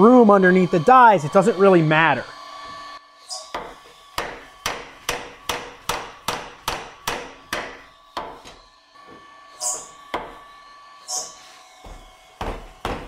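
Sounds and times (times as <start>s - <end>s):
power hammer metallic blows: 3.4s - 8.4s.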